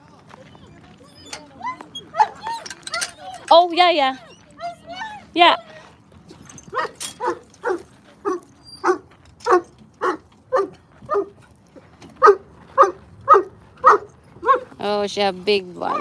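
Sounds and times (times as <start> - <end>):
dog barking: 6.7 - 11.3, 12.2 - 14.7.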